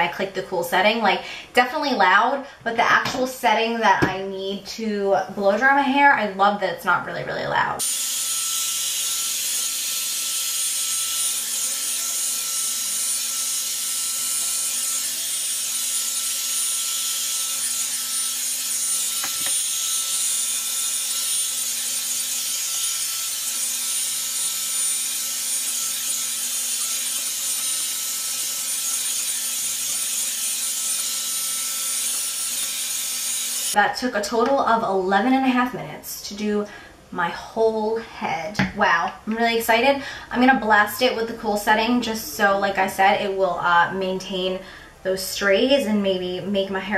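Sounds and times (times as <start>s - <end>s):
hair dryer brush running: 7.8s - 33.8s.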